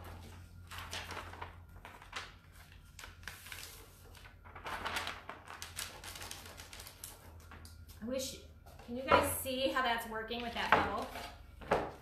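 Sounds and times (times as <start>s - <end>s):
plastic sheet crinkling and scratching: 0.0s - 7.6s.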